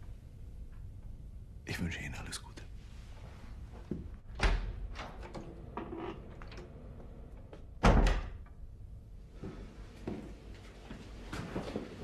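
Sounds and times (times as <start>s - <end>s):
door thudding: 7.8s - 8.5s.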